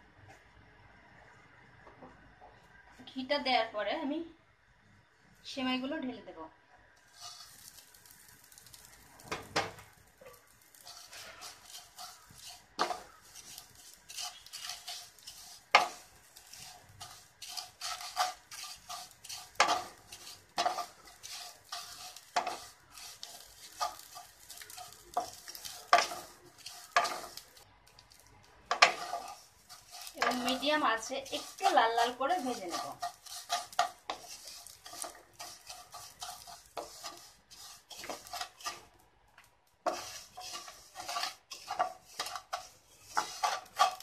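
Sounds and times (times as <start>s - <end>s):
faint sizzle: 0.0s - 44.0s
spatula knocking and scraping pan: 9.2s - 38.9s, 39.8s - 44.0s.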